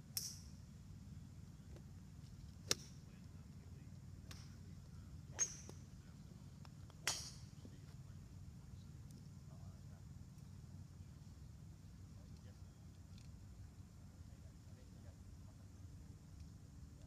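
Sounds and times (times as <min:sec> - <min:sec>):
low background rumble: 0:00.0 - 0:17.0
golf clubs striking balls: 0:00.2 - 0:00.5, 0:02.5 - 0:03.3, 0:04.0 - 0:08.0.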